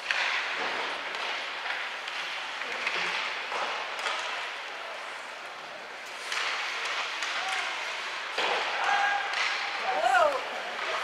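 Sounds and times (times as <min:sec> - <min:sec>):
basketball crowd voices: 0:03.8 - 0:11.0.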